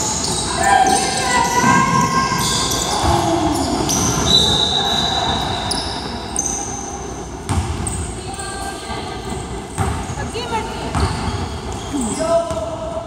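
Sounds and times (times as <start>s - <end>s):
sneakers squeaking on hardwood: 0.0s - 8.6s, 9.2s - 12.7s
basketball bouncing: 7.4s - 8.0s, 9.7s - 11.6s.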